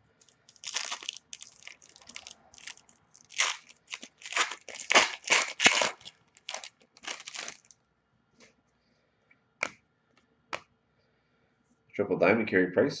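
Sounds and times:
foil wrapper crinkling and tearing: 0:00.2 - 0:07.7.

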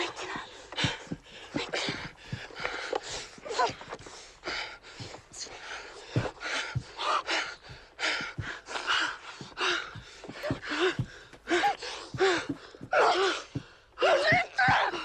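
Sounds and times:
person gasping heavily: 0:06.1 - 0:15.0.

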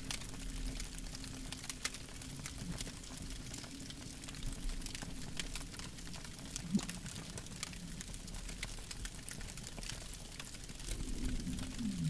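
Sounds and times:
campfire crackling: 0:00.0 - 0:12.0
low rumble: 0:10.9 - 0:12.0.

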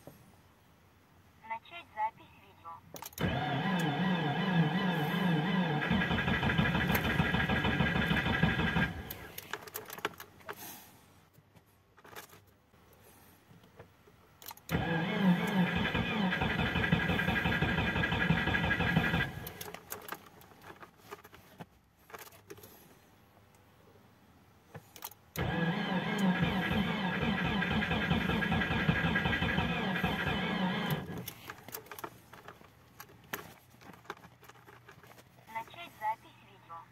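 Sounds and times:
engine turning over: 0:03.2 - 0:09.4, 0:14.7 - 0:20.2, 0:25.4 - 0:32.6
starter motor whining: 0:03.2 - 0:09.4, 0:14.7 - 0:20.0, 0:25.4 - 0:32.5.

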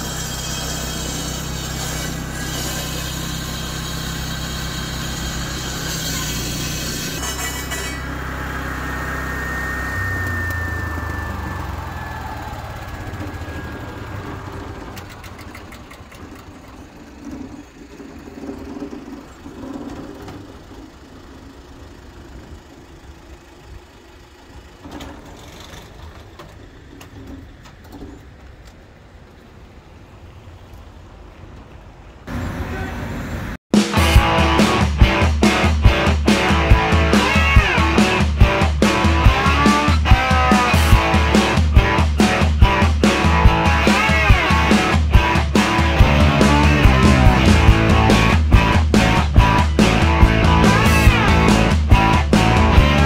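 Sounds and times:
floor saw cutting: 0:00.0 - 0:20.6, 0:34.0 - 0:53.0
traffic: 0:00.0 - 0:33.6, 0:34.2 - 0:53.0.

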